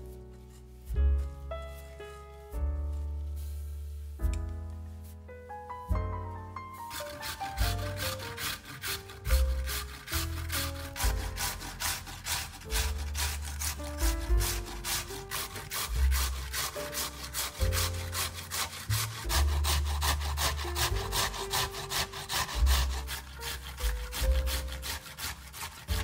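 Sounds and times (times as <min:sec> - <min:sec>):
background music: 0:00.0 - 0:26.0
vegetables grated on a hand grater: 0:06.8 - 0:26.0.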